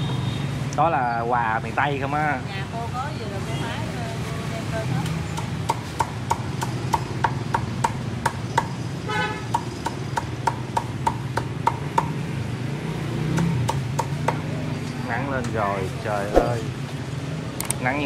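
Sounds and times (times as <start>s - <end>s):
vehicle horn toot: 0.0s - 0.5s, 9.1s - 9.5s
traffic rumble: 0.0s - 18.0s.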